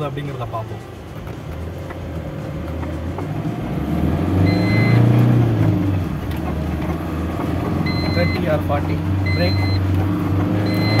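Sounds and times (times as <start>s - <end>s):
diesel engine accelerating: 0.0s - 11.0s
short electronic beep: 4.4s - 5.1s, 7.9s - 8.5s, 9.3s - 9.8s, 10.7s - 11.0s.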